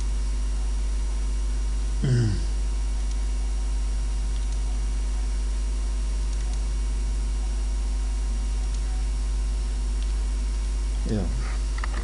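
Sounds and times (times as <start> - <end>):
low electrical hum: 0.0 - 12.0
vocal murmur: 2.0 - 2.6.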